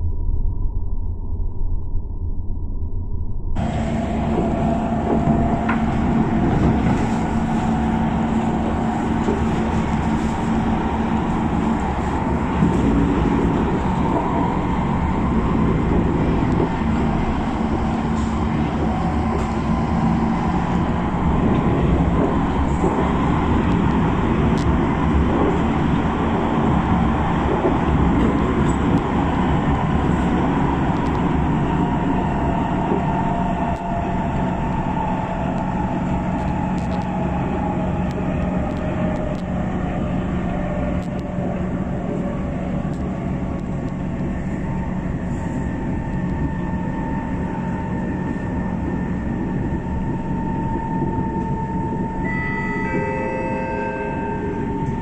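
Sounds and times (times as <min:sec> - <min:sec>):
low hum: 0:00.0 - 0:41.4, 0:43.6 - 0:55.0
train wheels rumbling on rail: 0:03.6 - 0:52.3
humming motor tones: 0:50.1 - 0:55.0.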